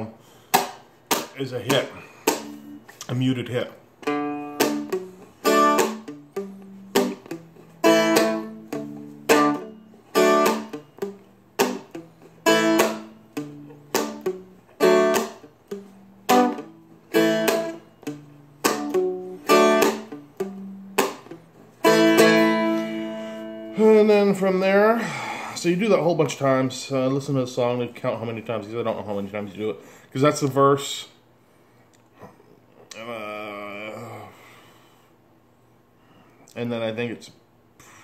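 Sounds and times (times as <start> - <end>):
dulcimer strummed with a pick: 4.1 - 11.8, 12.4 - 21.2, 21.8 - 23.8.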